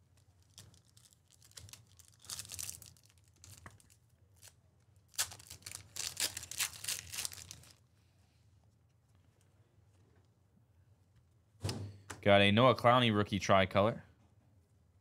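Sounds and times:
card pack wrapper tearing and crinkling: 0:00.4 - 0:07.8.

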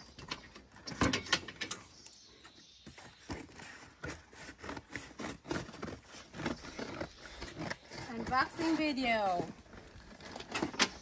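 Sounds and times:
cardboard box being torn open: 0:03.2 - 0:11.0.

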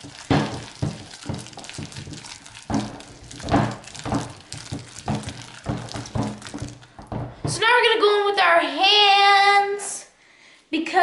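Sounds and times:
wet squishing and small clicks: 0:00.0 - 0:07.0
spatula stirring sticky slime: 0:00.0 - 0:07.7.

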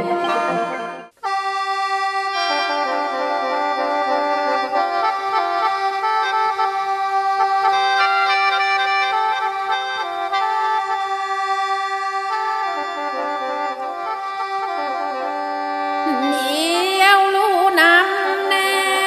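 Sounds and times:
mouth organ folk music: 0:00.0 - 0:19.0.

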